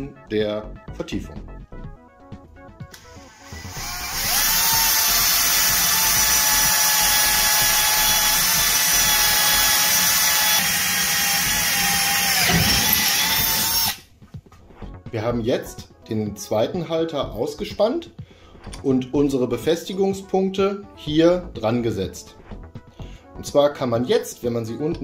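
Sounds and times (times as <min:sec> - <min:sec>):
power drill boring through metal: 0:03.0 - 0:14.0.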